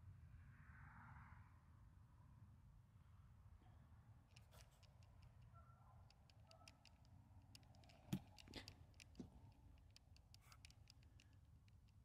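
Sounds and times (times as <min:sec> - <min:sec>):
faint clicks and ticks: 0:04.3 - 0:12.0.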